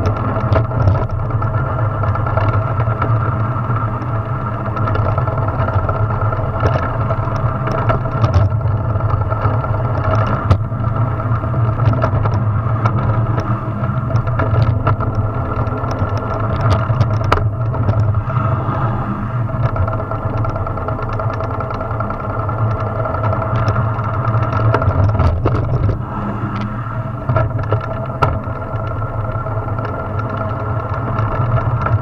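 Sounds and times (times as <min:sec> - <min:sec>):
wheels rumbling on asphalt: 0:00.0 - 0:32.0.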